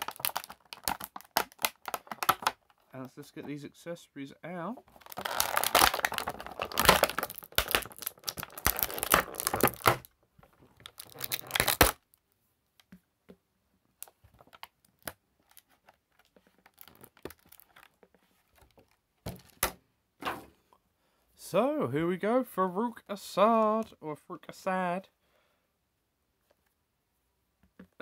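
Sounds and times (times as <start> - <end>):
plastic packaging crinkling and tearing: 0.0 - 2.8, 4.9 - 10.1, 10.8 - 12.1, 14.0 - 19.6.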